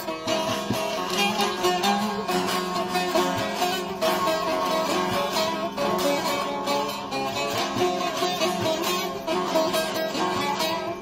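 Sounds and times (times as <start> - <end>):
plucked long-necked lute melody: 0.0 - 11.0.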